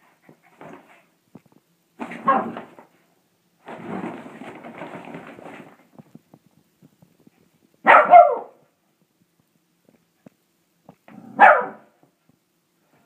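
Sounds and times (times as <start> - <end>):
fabric bag rustling: 3.6 - 6.1
dog barking: 7.8 - 8.6, 11.3 - 12.0.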